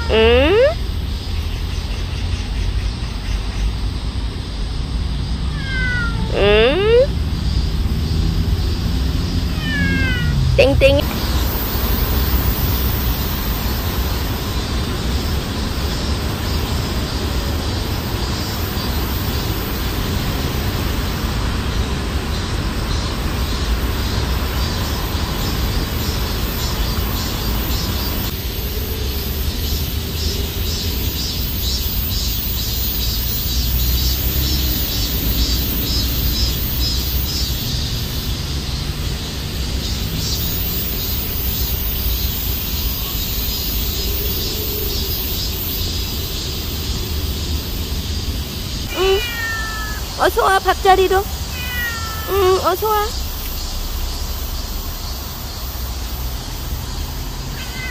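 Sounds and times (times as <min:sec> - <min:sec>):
outdoor background rumble: 0:00.0 - 0:57.9.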